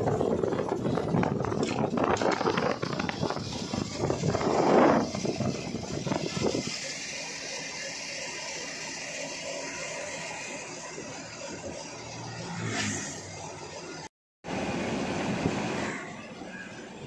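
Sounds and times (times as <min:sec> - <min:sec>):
wind buffeting microphone: 0:00.0 - 0:06.8
road and engine noise: 0:00.0 - 0:17.0.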